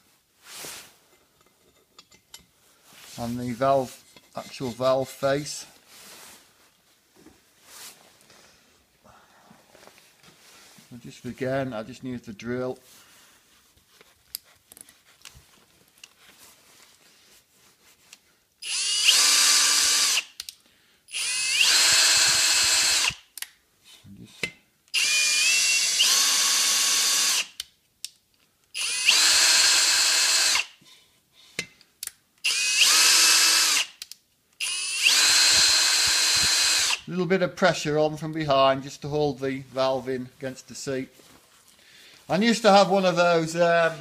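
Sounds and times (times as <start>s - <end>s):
cordless drill whining: 18.6s - 20.4s, 21.1s - 23.3s, 24.9s - 27.6s, 28.7s - 30.8s, 32.4s - 34.0s, 34.6s - 37.1s.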